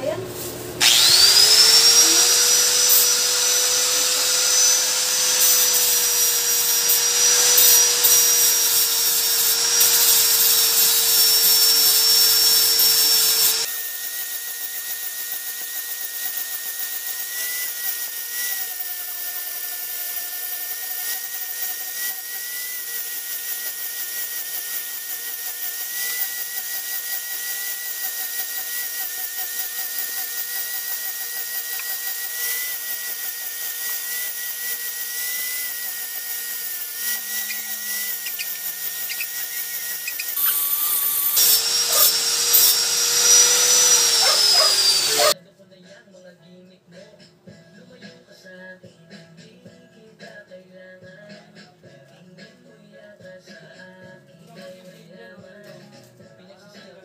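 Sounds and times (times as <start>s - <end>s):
angle grinder whine: 0.8s - 45.4s.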